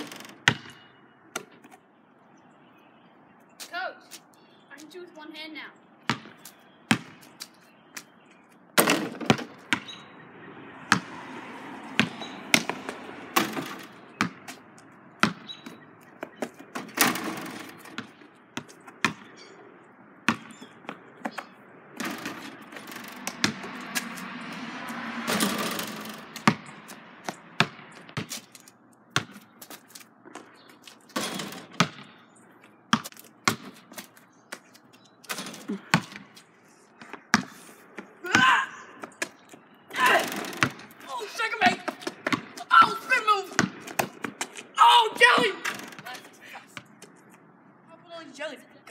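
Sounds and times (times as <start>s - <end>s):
basketball bouncing on asphalt: 0.0s - 2.0s, 6.0s - 44.7s, 45.3s - 47.5s.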